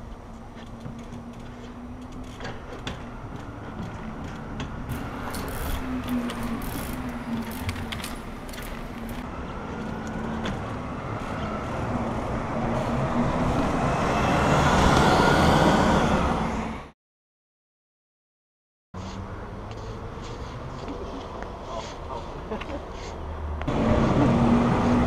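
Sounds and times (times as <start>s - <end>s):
traffic hum: 0.0s - 16.9s
bike clicks and knocks: 0.3s - 10.7s
bus passing: 3.0s - 16.9s, 22.1s - 25.0s.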